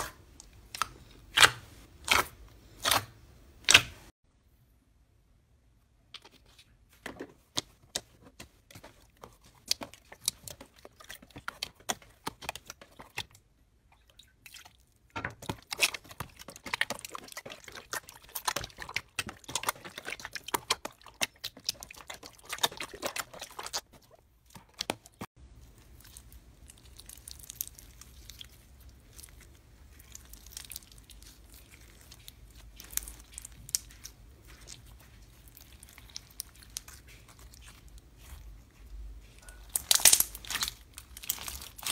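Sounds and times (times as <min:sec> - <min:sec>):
slime wet pops and crackles: 0:24.6 - 0:38.3, 0:39.5 - 0:41.9.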